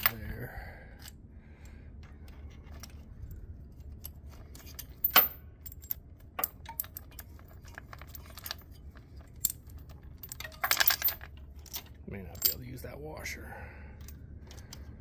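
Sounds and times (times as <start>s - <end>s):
metal chain clinking: 2.6s - 12.9s.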